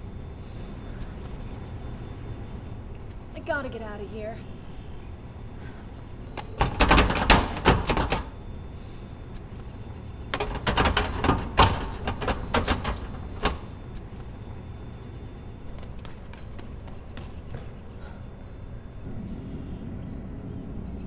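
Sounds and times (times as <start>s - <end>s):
rapid knocking and clattering: 6.4s - 8.3s, 10.3s - 13.7s.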